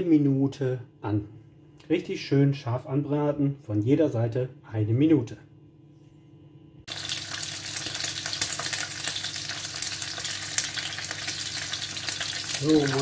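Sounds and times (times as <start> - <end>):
steaks sizzling in hot oil: 6.9 - 13.0.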